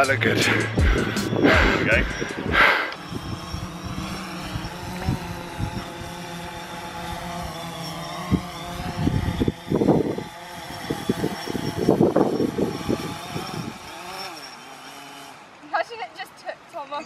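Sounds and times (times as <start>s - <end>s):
wind buffeting microphone: 0.0s - 6.6s, 8.2s - 14.0s
drone propellers whining: 0.0s - 17.0s.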